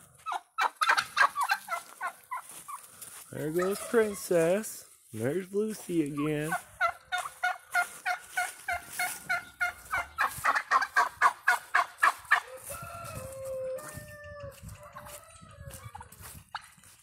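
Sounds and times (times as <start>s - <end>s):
turkeys calling: 0.0s - 17.0s
rooster crowing: 12.3s - 16.1s.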